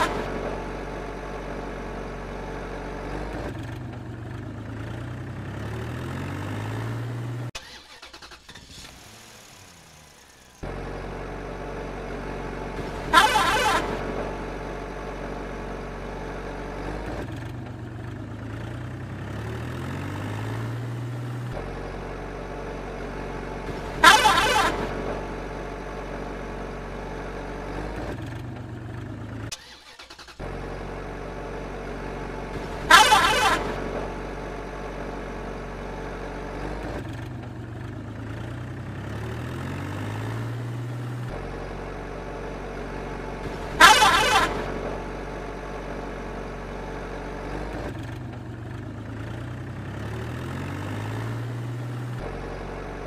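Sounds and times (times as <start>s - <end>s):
vehicle engine revving: 0.0s - 53.0s
loud horn blasts: 13.0s - 14.2s, 23.8s - 25.2s, 32.8s - 34.2s, 43.6s - 45.1s.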